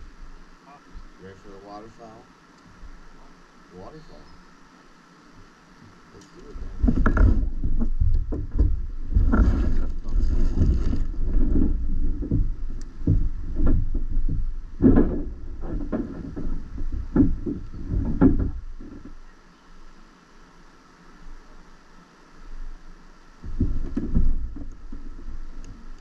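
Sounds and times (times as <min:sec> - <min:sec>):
boat hull knocks: 0:06.7 - 0:09.7, 0:10.6 - 0:19.2, 0:23.4 - 0:25.6.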